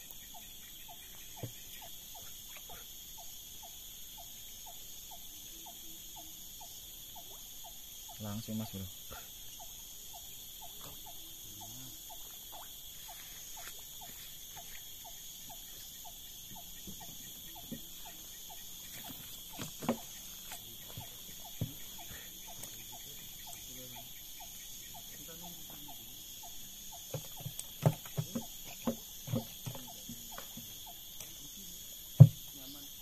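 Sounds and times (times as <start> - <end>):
insects droning: 0.0 - 33.0
sharp knocks: 27.1 - 29.9, 32.2 - 32.5.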